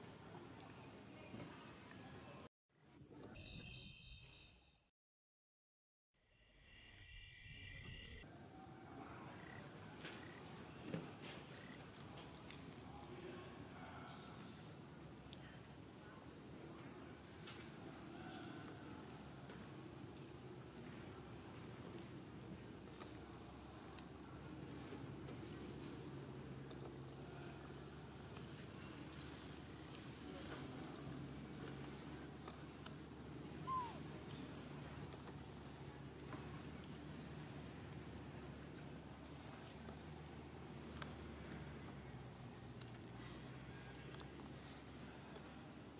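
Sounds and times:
insects trilling: 7.0 - 45.9
high insect chirring: 33.6 - 34.6.

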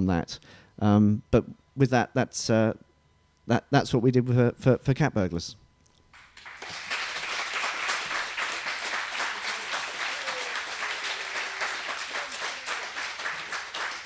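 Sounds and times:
audience applauding: 6.2 - 14.0.

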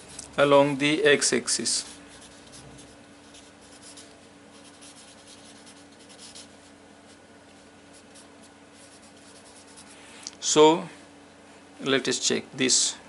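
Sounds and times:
low steady hum: 0.0 - 13.0
marker pen scratching on paper: 1.7 - 6.5, 7.9 - 10.0.

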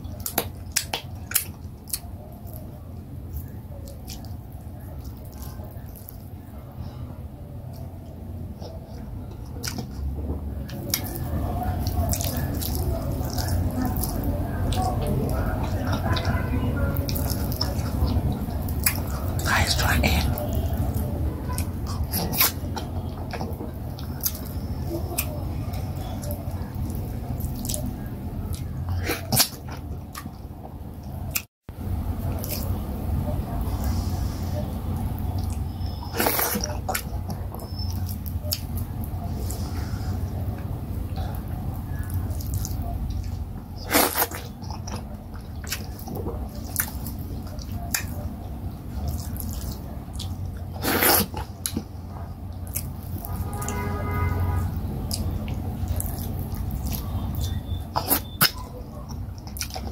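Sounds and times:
wet chewing and smacking: 0.0 - 59.9
wet squishy eating clicks: 7.7 - 31.5, 54.6 - 59.9.

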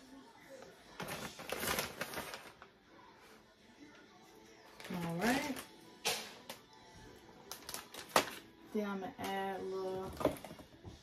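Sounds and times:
faint background music: 0.0 - 11.0
plastic bag rustling: 0.9 - 2.8.

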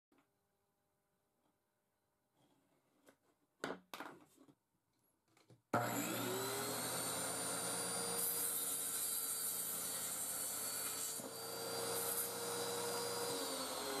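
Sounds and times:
table saw motor whine: 5.8 - 14.0.

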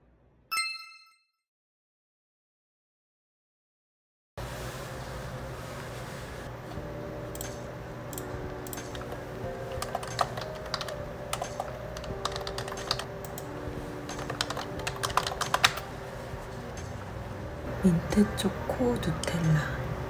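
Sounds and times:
soft background music: 4.5 - 20.0.

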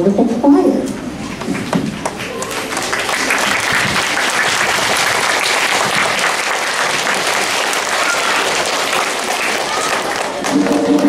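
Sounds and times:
children applauding: 1.2 - 11.0.

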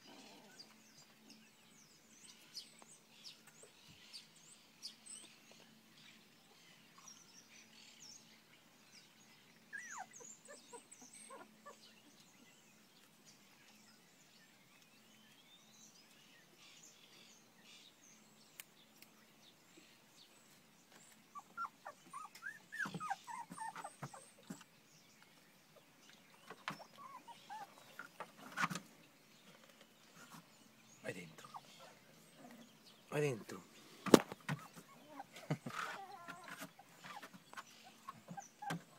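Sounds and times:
puppies whimpering: 9.7 - 12.2, 21.3 - 24.6, 26.8 - 28.1, 34.6 - 38.9.

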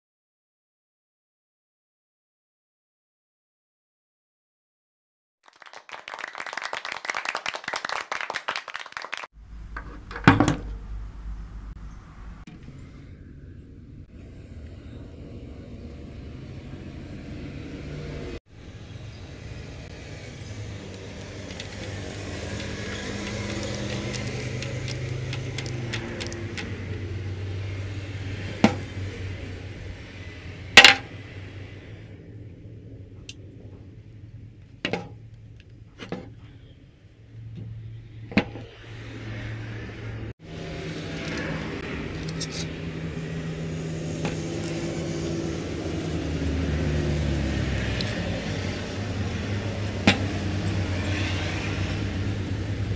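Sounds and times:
low steady hum: 9.4 - 17.0
low mechanical hum: 9.4 - 51.1.

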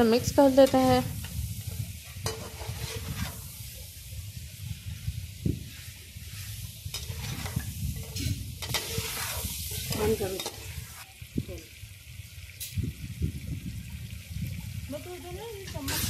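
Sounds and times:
metal ladle scraping pan: 0.0 - 3.8, 5.7 - 11.0, 15.7 - 16.0
meat frying and sizzling: 0.0 - 16.0.

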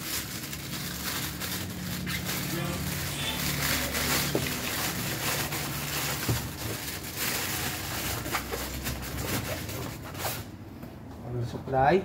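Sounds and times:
plastic bag rustling: 0.0 - 10.6.

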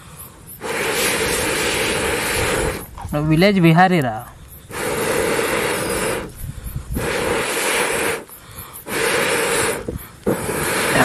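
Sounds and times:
person blowing on campfire: 0.0 - 3.0, 4.3 - 11.0.

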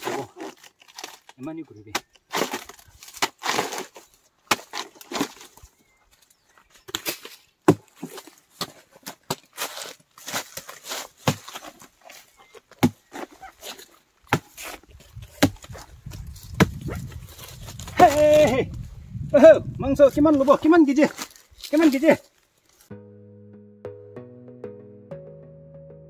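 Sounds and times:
machete chopping plant stem: 14.3 - 15.8, 16.4 - 17.0.

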